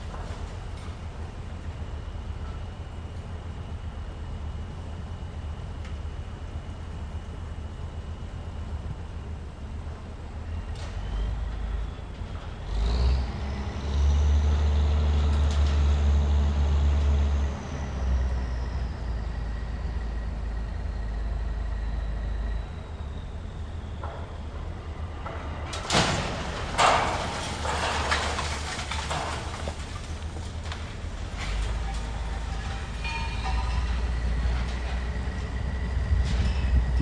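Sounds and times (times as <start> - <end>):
diesel machinery engine revving: 12.6 - 28.3
concrete crashing down: 25.8 - 30.6.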